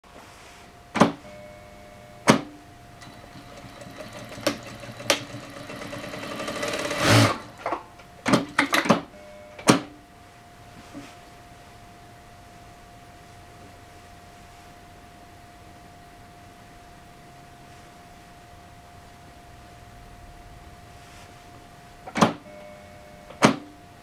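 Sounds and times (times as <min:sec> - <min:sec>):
sewing machine humming: 0:03.0 - 0:07.8.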